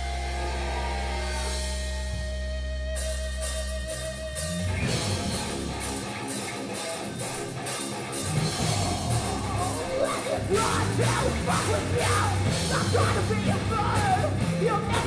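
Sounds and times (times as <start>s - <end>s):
droning guitar chord: 0.0s - 5.8s
rock band playing: 0.0s - 15.0s.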